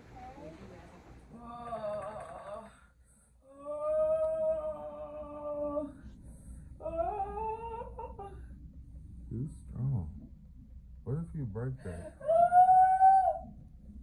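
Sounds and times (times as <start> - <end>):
woman moaning: 3.4 - 6.0, 6.8 - 8.4, 12.0 - 13.4.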